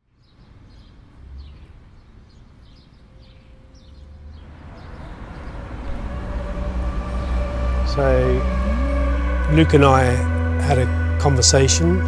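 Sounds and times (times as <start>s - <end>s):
small birds chirping: 0.0s - 6.2s
steady low rumble: 4.4s - 12.0s.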